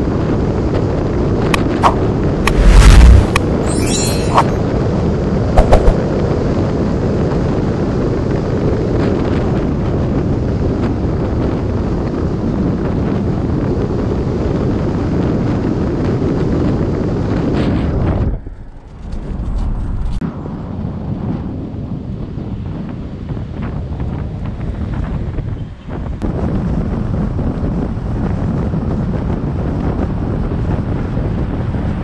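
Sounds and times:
wind buffeting microphone: 0.0s - 32.0s
sharp knocks: 5.6s - 6.0s.

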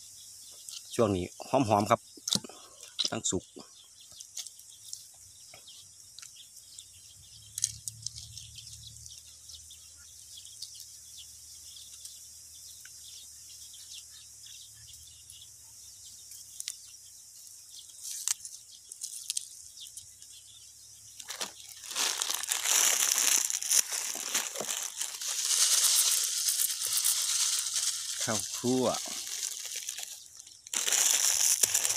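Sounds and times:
plastic bag crinkling: 21.2s - 31.9s.

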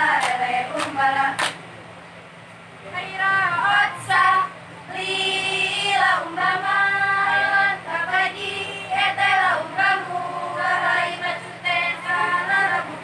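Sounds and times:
girls chanting in unison: 3.5s - 13.0s.

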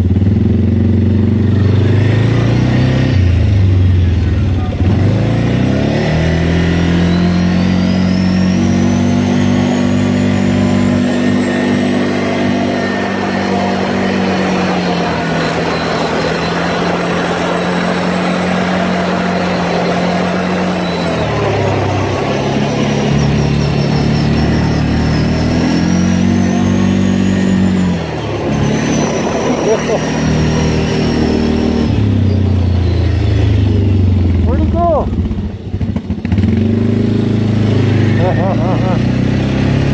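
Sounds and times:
atv engine running: 0.0s - 39.9s
thin high whine: 6.4s - 34.9s.

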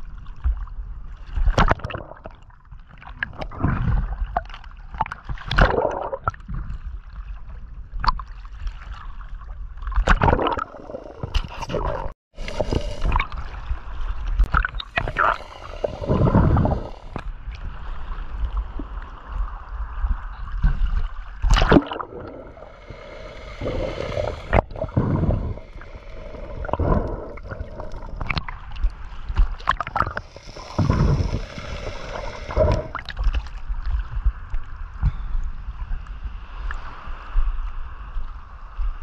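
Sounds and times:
water sloshing and gurgling: 0.0s - 38.5s
low rumble: 14.8s - 17.4s, 21.9s - 36.4s.

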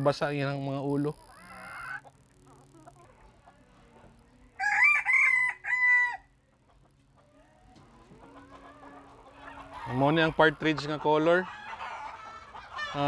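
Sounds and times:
rooster crowing: 4.6s - 6.3s.

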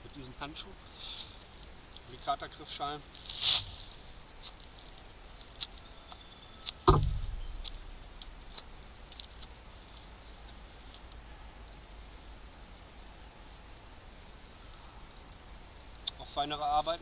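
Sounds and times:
thump: 6.9s - 8.0s.

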